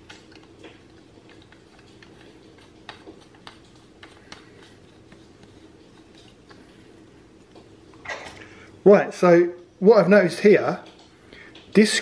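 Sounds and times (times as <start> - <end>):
faint clicks and taps: 0.0 - 8.0
steady low hum: 0.0 - 12.0.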